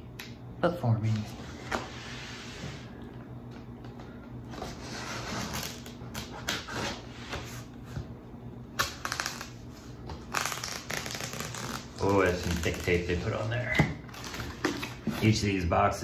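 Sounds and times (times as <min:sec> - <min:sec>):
packing tape ripping: 0:05.3 - 0:06.8, 0:08.7 - 0:09.6, 0:10.2 - 0:13.0
fingernails scratching tape: 0:10.3 - 0:12.8.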